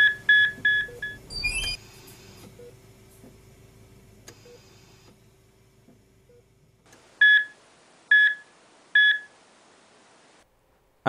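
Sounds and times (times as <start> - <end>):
patient monitor alarm beeping: 0.0 - 1.8, 7.2 - 8.4, 9.0 - 9.3.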